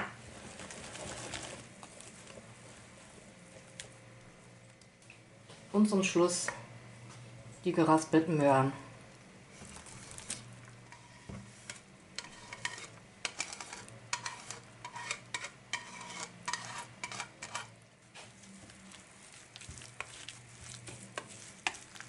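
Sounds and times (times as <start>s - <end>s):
stirring wet batter: 0.2s - 4.4s, 9.5s - 22.0s
whisk scraping wooden board: 9.6s - 22.0s.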